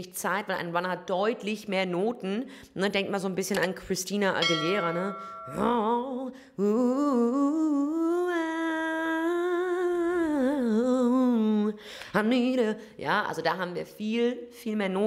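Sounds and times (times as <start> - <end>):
woman singing vocal run: 4.5 - 12.8.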